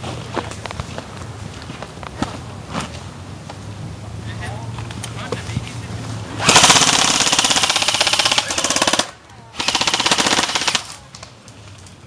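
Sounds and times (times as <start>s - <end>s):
airsoft rifle firing bursts: 6.4s - 11.0s.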